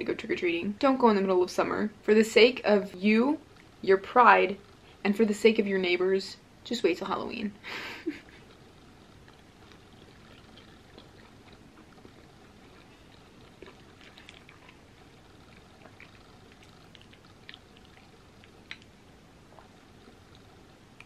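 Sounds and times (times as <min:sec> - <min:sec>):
soft wet chewing: 0:03.4 - 0:03.8, 0:08.0 - 0:21.0.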